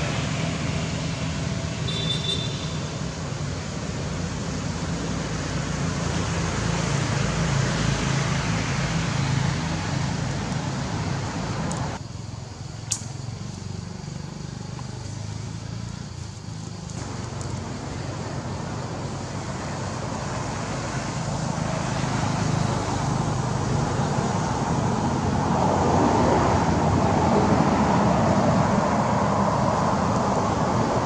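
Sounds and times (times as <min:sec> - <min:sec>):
low rumble and hiss outdoors: 0:00.0 - 0:31.0
sharp click: 0:12.8 - 0:13.2.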